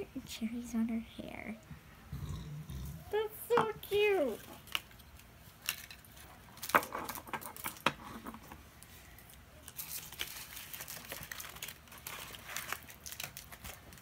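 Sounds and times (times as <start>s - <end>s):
wrappers crinkling and rustling: 4.2s - 8.0s, 8.8s - 14.0s.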